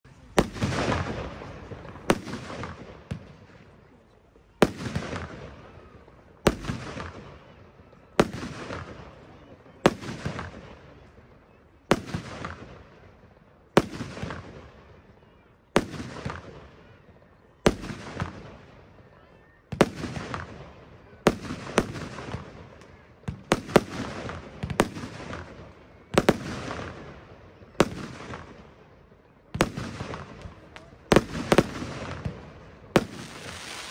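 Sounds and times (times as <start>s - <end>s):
firework bangs: 0.1s - 3.7s, 4.6s - 7.4s, 29.5s - 33.9s
firework stars hissing: 33.2s - 33.9s.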